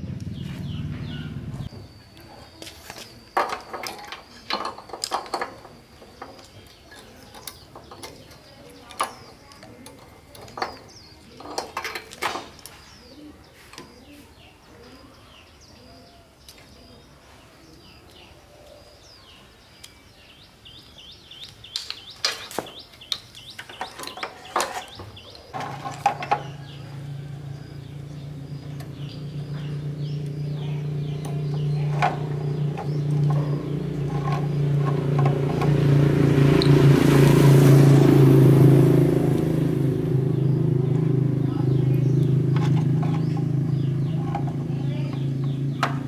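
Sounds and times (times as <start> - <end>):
birds chirping: 0.0 - 46.0
small petrol engine running: 25.6 - 46.0.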